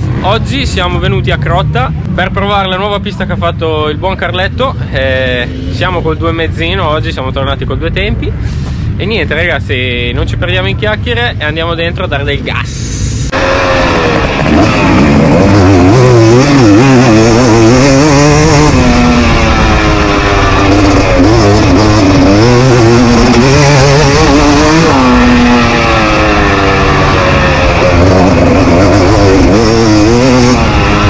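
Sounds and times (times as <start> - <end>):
motocross engine revving: 13.2 - 31.0.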